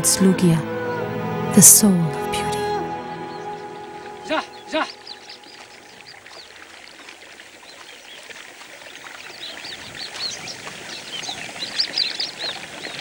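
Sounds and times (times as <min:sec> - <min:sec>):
flowing water hiss: 0:02.8 - 0:13.0
small birds chirping: 0:02.8 - 0:13.0.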